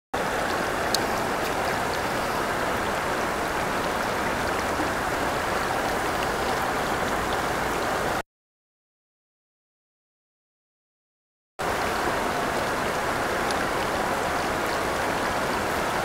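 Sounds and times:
river water rushing: 0.2 - 8.2, 11.6 - 16.0
water splashes: 0.2 - 8.2, 11.6 - 16.0.

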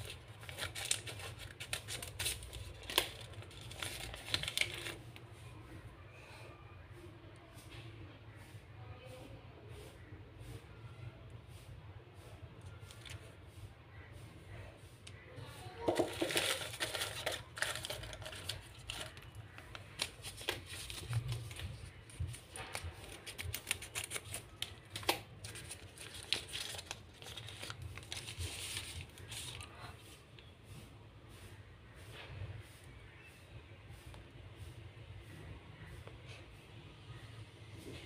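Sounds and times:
scissors snipping paper: 0.0 - 5.0, 16.0 - 29.7
paper rustling and crinkling: 0.0 - 5.3, 12.6 - 13.4, 15.8 - 30.5.

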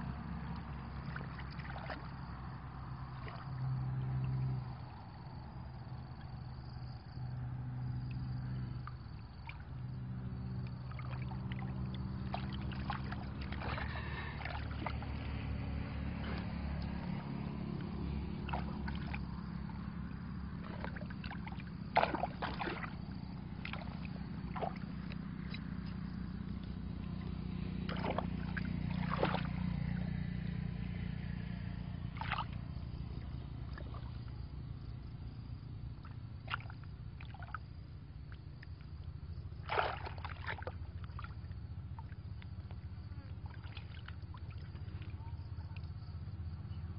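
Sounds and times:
low engine-like hum: 0.0 - 46.9
muddy water sloshing: 0.0 - 46.9
sharp splashes or knocks: 10.9 - 15.3, 18.4 - 19.3, 20.6 - 23.0, 23.6 - 24.8, 27.9 - 29.6, 39.6 - 40.7.

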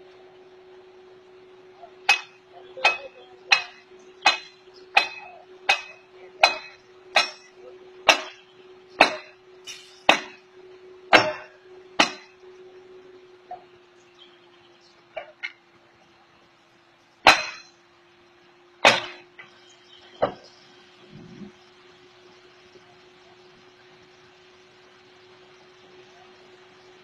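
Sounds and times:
steady low hum: 0.0 - 27.0
hammer striking metal: 2.0 - 8.4, 9.0 - 10.4, 11.1 - 12.4, 17.2 - 17.8, 18.8 - 19.3.

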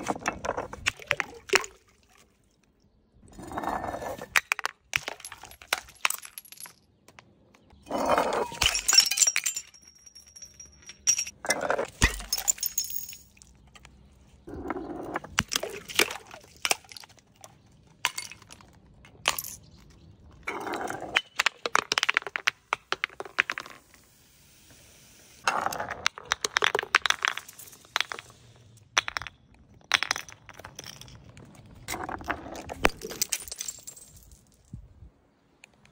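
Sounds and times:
glass bottles smashing on stone steps: 4.3 - 7.0, 8.3 - 13.7, 15.2 - 17.4, 18.0 - 20.0, 20.7 - 23.9, 25.7 - 34.7
glass shards clinking: 8.4 - 13.5.

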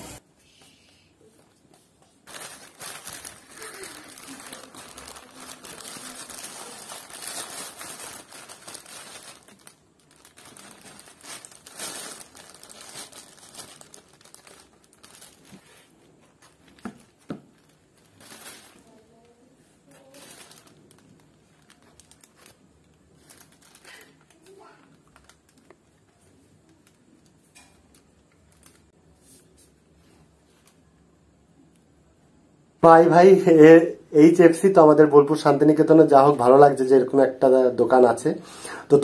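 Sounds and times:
plastic bag and wrapper crinkling: 2.1 - 29.2.

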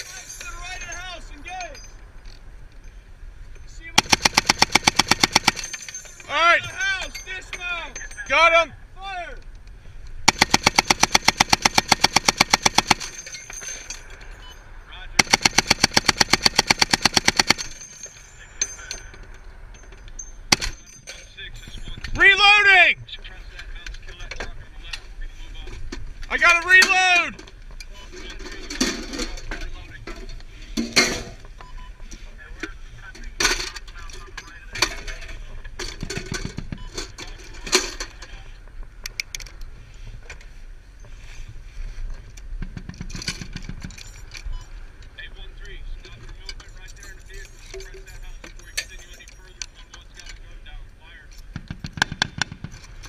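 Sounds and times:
vehicle engine rumbling: 0.0 - 26.7, 27.4 - 53.0
heavy machine gun burst: 4.0 - 5.8, 10.3 - 13.2, 15.2 - 17.8
low rapid rattle: 4.0 - 6.3, 10.3 - 14.1, 15.2 - 18.2.

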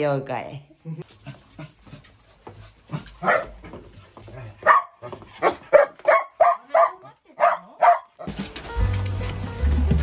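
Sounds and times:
dog barking: 3.2 - 3.6, 4.6 - 8.3.

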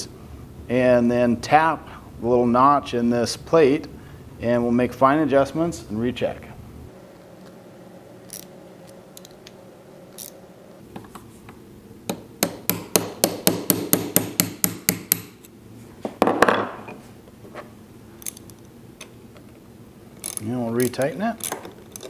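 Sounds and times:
hammer tapping metal punch: 12.1 - 15.4.

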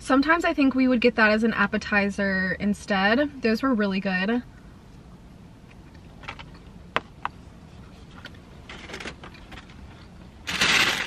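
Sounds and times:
plastic crinkling and rustling: 10.5 - 11.0.

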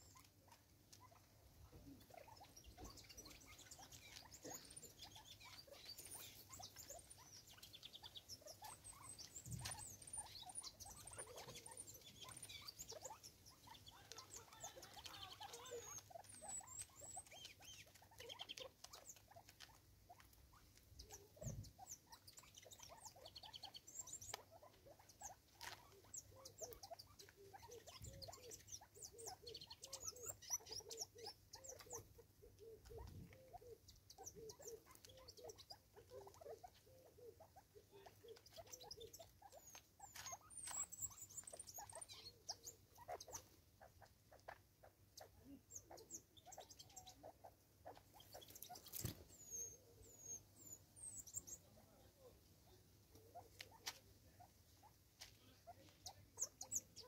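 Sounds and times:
birds clucking softly: 0.0 - 57.0
beaks tapping on wood: 2.4 - 36.8, 38.0 - 43.5, 47.9 - 49.6.

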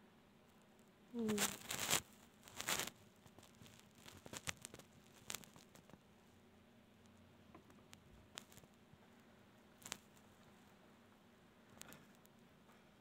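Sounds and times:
fur and fabric rubbing on microphone: 1.2 - 5.9
soft scratches and taps: 1.3 - 6.1, 7.0 - 8.8, 9.8 - 10.6.

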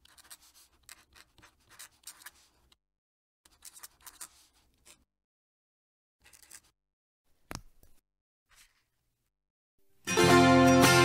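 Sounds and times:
pen nib scratching on paper: 0.0 - 2.8, 3.5 - 5.1, 6.2 - 6.7.

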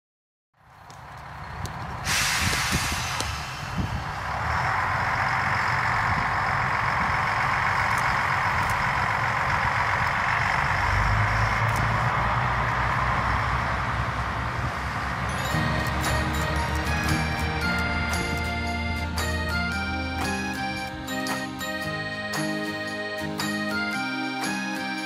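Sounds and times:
train rolling rumble: 0.7 - 22.6
air hiss: 2.0 - 4.3.

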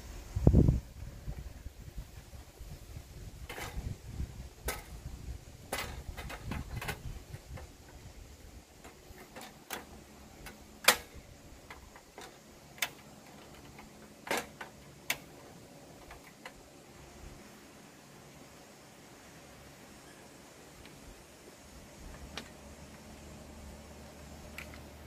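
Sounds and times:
sharp clicks and knocks: 4.6 - 5.0, 5.7 - 8.0, 8.8 - 16.6, 24.5 - 24.9.

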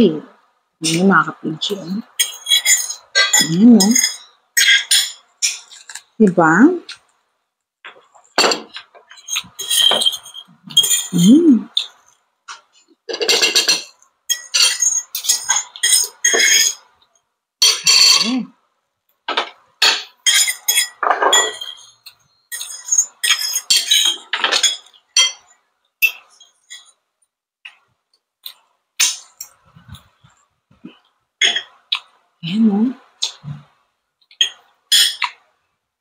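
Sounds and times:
cutlery clinking on metal pan: 2.2 - 6.0, 7.9 - 16.8, 17.6 - 18.3, 19.3 - 26.9, 34.3 - 35.4.

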